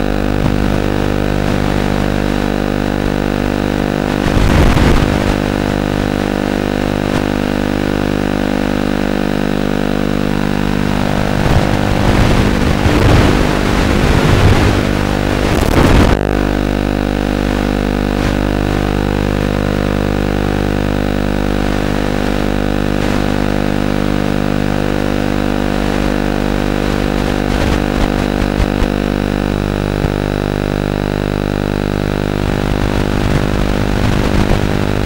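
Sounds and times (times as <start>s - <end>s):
quadcopter motor buzz: 0.0s - 35.0s.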